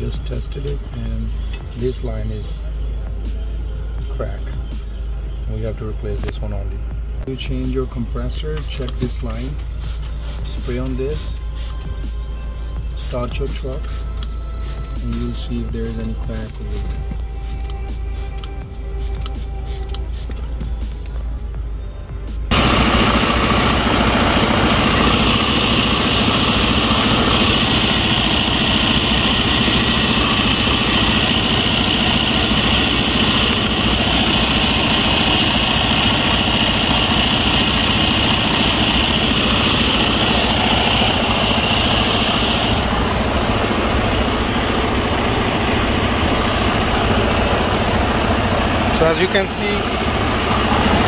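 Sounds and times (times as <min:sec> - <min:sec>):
air hissing: 0:09.8 - 0:11.8, 0:13.8 - 0:15.0, 0:16.7 - 0:20.4, 0:22.5 - 0:51.0
diesel truck engine idling: 0:21.8 - 0:51.0.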